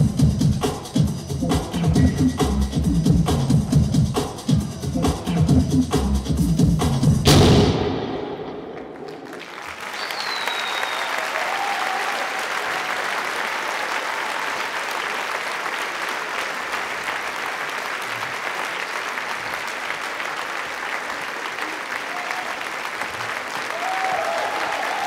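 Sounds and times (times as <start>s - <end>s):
show music: 0.0s - 9.8s
audience applauding: 8.6s - 25.0s.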